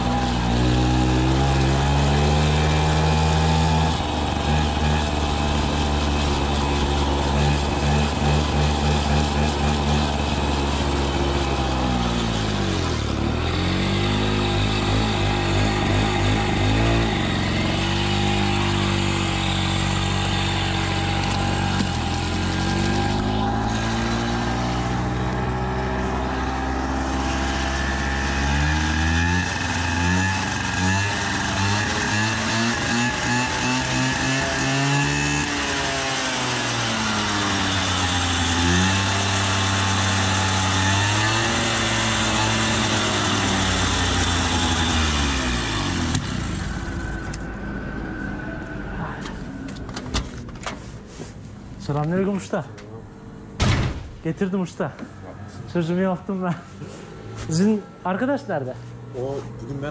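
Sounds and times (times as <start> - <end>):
moped engine revving: 0.0 - 50.1
exhaust pops: 21.0 - 23.3, 46.0 - 47.5, 53.6 - 55.1.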